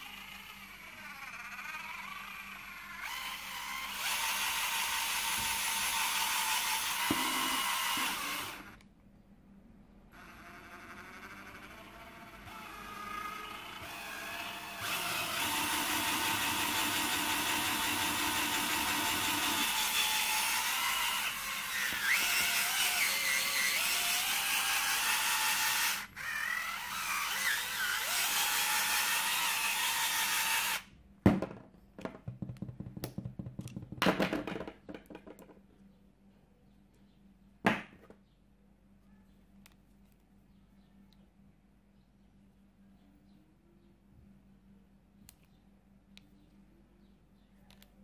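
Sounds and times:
cordless drill motor running: 0.0 - 8.8, 10.1 - 30.9.

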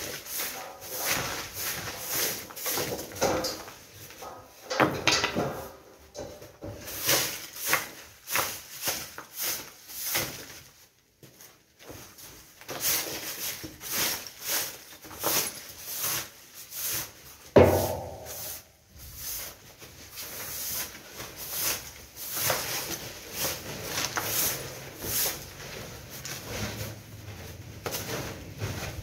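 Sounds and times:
tool scraping rubble across floor: 0.0 - 10.5, 12.6 - 29.0
heavy thump: 17.6 - 18.6.

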